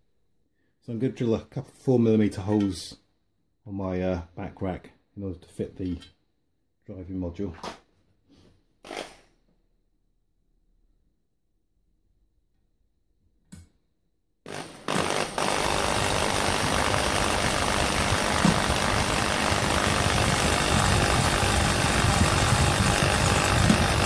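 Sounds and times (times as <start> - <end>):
electric drill drilling metal: 14.5 - 24.0.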